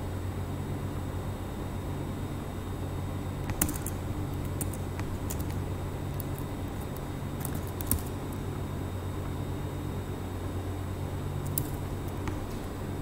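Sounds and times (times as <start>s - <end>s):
steady low hum: 0.0s - 13.0s
keyboard key clicks: 3.5s - 8.2s.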